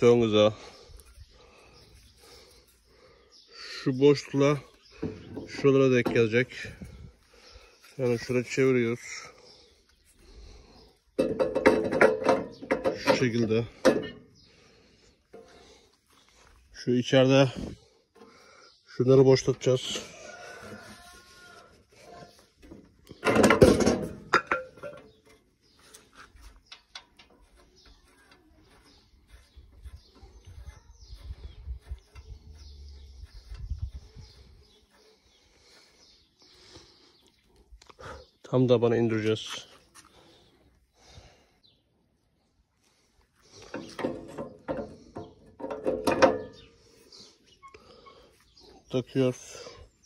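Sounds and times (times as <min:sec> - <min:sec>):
wrench clanking on metal: 0:23.2 - 0:25.3, 0:43.7 - 0:46.7.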